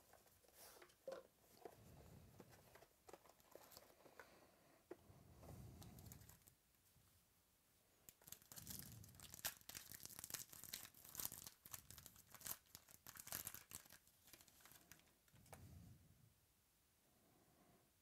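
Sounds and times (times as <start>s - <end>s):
foil wrapper tearing and crinkling: 8.1s - 15.1s.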